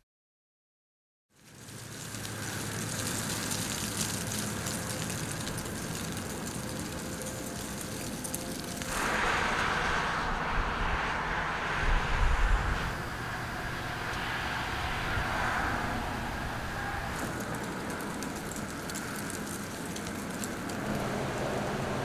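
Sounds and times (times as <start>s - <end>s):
steady traffic noise: 1.4s - 22.0s
vehicle rumbling past: 8.4s - 19.6s, 20.7s - 22.0s.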